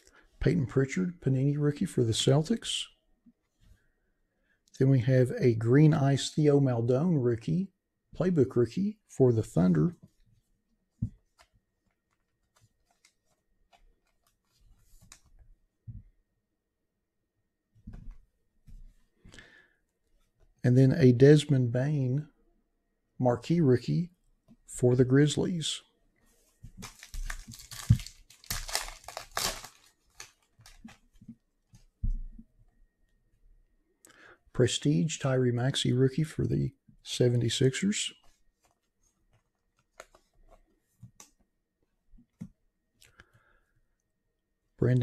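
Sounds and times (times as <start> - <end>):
trading cards clicking and rustling: 11.1 - 15.3, 26.7 - 31.2, 38.6 - 41.4
wrapper tearing and crinkling: 26.8 - 31.0.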